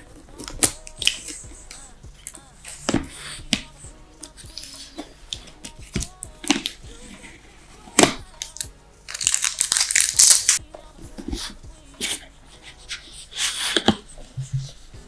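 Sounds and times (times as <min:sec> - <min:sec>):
plastic seal crinkling and tearing: 0:08.0 - 0:10.6.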